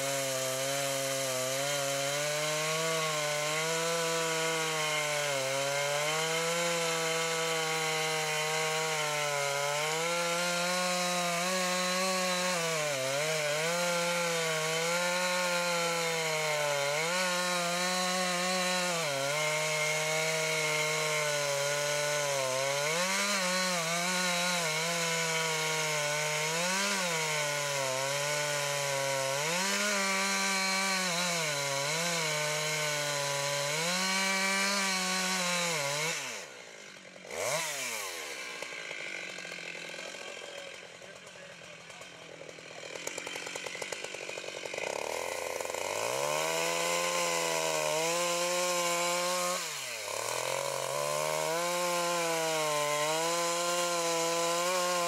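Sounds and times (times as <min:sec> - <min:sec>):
chainsaw cutting at full throttle: 0:00.0 - 0:55.0.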